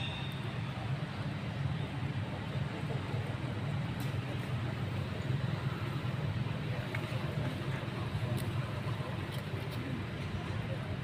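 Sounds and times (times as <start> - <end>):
low rumble with hiss: 0.1 - 11.0.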